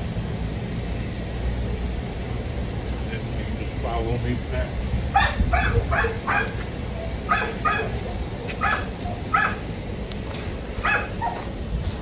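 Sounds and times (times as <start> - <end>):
dog barking: 5.1 - 6.6, 7.3 - 8.0, 8.6 - 9.6, 10.8 - 11.4.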